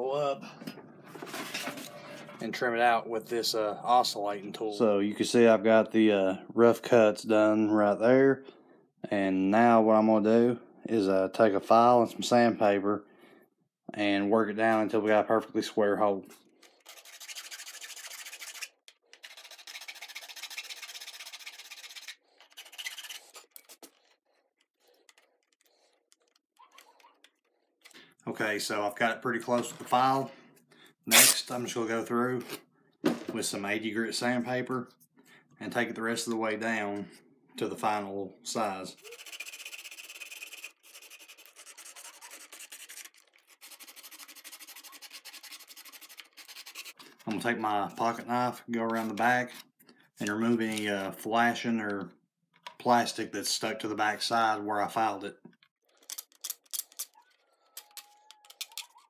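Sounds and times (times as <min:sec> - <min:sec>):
hand file rasping plastic: 0:16.4 - 0:27.6, 0:39.0 - 0:48.2, 0:56.2 - 0:59.0
sandpaper rubbing on plastic: 0:16.6 - 0:23.9, 0:39.0 - 0:47.3.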